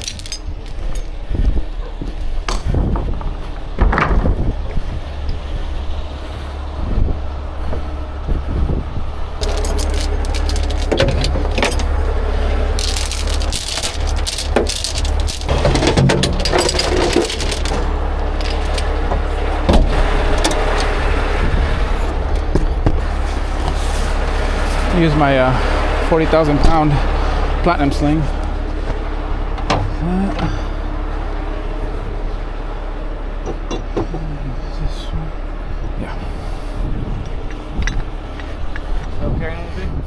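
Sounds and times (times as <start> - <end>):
chains and hooks clinking: 0.0 - 1.2, 9.4 - 19.0
tow truck engine rumble: 0.0 - 40.0.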